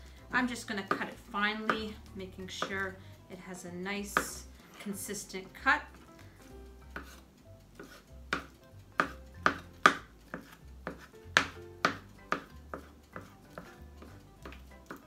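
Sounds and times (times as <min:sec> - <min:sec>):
knife chopping on cutting board: 0:00.7 - 0:02.9, 0:04.1 - 0:04.5, 0:06.9 - 0:15.0.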